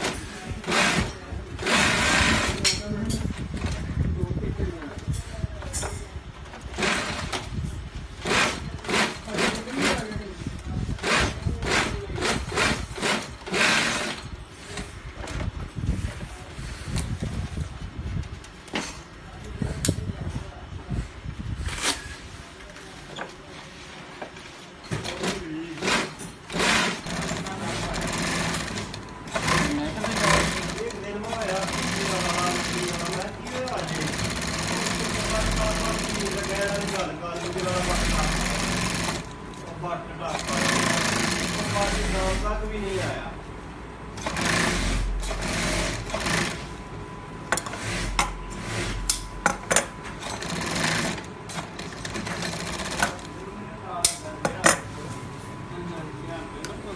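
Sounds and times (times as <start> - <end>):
industrial sewing machine running: 0.0 - 2.7, 6.7 - 7.5, 8.2 - 10.2, 11.0 - 14.3, 25.1 - 39.4, 40.2 - 43.3, 44.2 - 46.8, 47.6 - 49.2, 50.2 - 53.3.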